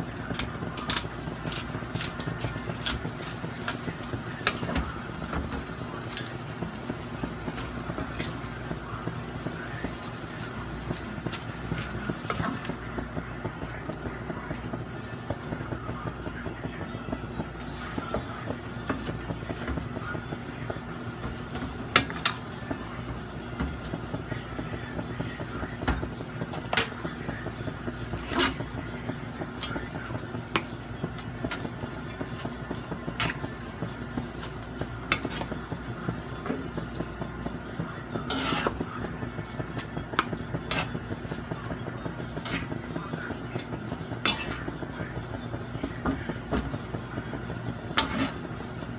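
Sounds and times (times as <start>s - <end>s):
spatula scraping in a wok: 26.7s - 33.6s, 34.3s - 37.1s, 37.7s - 38.9s, 39.7s - 42.9s, 43.6s - 44.8s, 47.8s - 48.5s.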